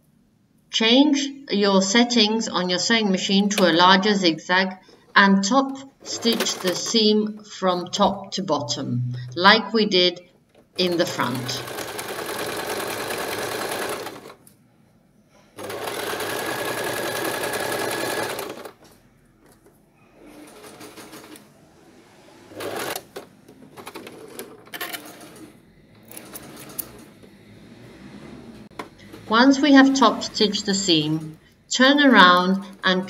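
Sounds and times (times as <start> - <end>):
sewing machine running: 6.0 - 7.4, 10.7 - 14.4, 15.6 - 18.9, 20.2 - 32.9.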